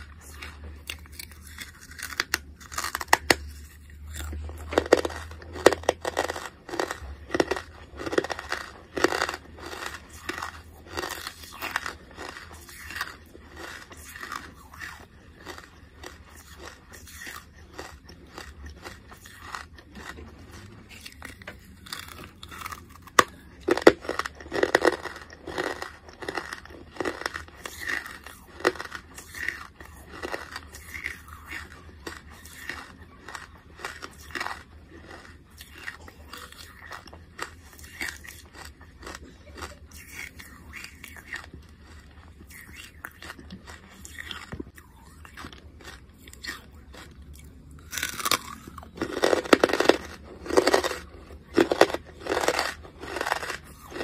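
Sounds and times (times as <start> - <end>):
person crunching charcoal: 0.0 - 54.0.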